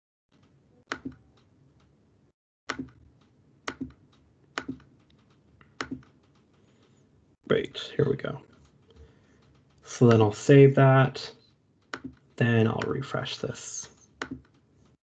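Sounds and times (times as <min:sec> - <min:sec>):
computer mouse clicking: 0:00.4 - 0:01.9, 0:02.7 - 0:07.0, 0:11.8 - 0:13.0, 0:14.0 - 0:15.0.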